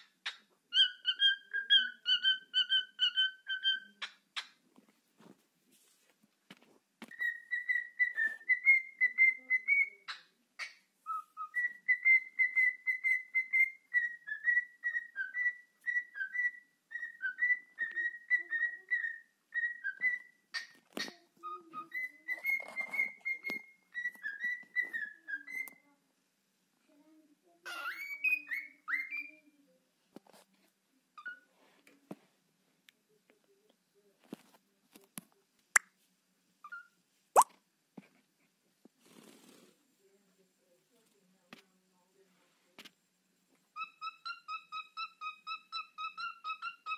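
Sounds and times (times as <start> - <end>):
cockatiel whistling: 7.1 - 10.0, 11.1 - 20.4, 21.8 - 25.7.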